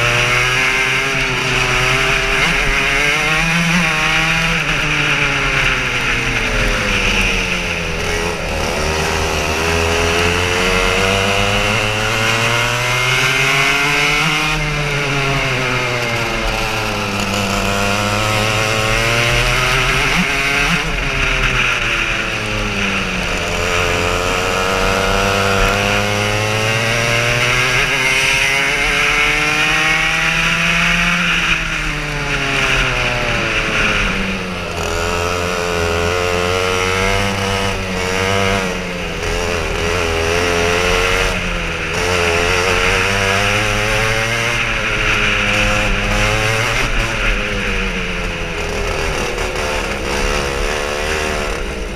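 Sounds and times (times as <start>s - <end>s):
kart engine revving: 0.0s - 51.9s.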